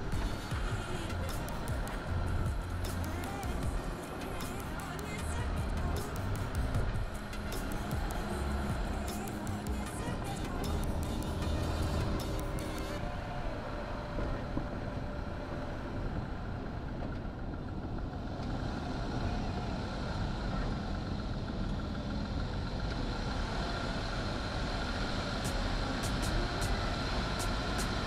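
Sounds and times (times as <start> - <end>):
car engine running at low speed: 0.0 - 28.0
sharp clicks: 4.2 - 13.0.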